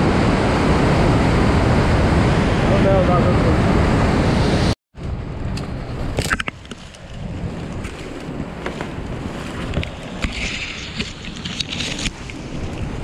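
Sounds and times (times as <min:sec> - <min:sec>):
whitewater rumble: 0:00.0 - 0:13.0
wind on microphone: 0:00.0 - 0:13.0
branches and leaves scraping: 0:06.0 - 0:12.2.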